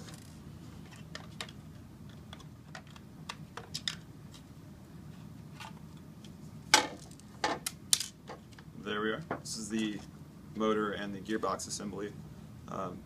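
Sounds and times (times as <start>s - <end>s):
plastic parts clicking and tapping: 0.9s - 4.0s.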